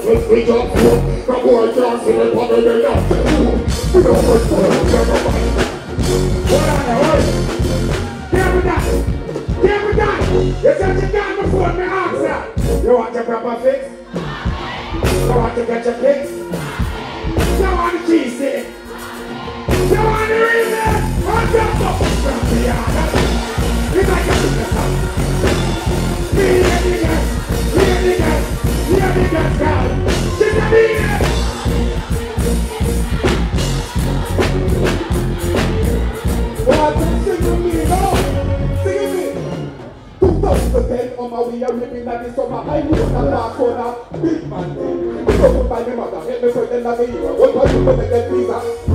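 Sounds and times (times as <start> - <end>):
heavy bass riddim: 0.0 - 13.1, 13.9 - 48.9.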